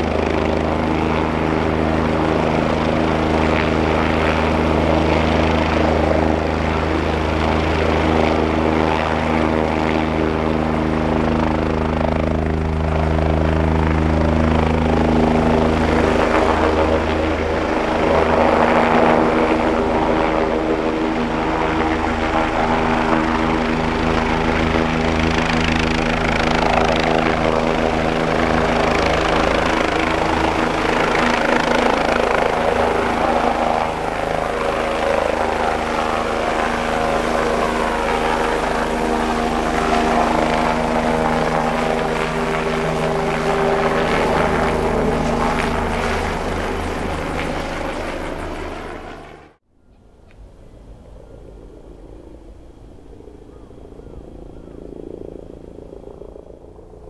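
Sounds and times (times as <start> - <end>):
helicopter turbine and rotor: 0.0 - 57.0.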